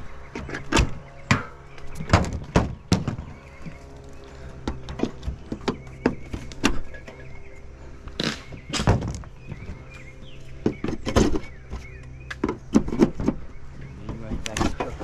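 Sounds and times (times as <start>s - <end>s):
low steady hum: 0.0s - 15.0s
knocks and thuds on metal siding: 0.3s - 3.5s, 4.6s - 7.2s, 8.4s - 9.9s, 10.6s - 15.0s.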